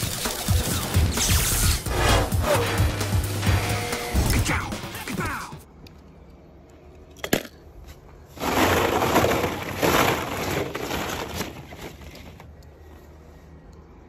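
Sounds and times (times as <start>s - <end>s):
plastic balls clattering: 8.3s - 12.6s.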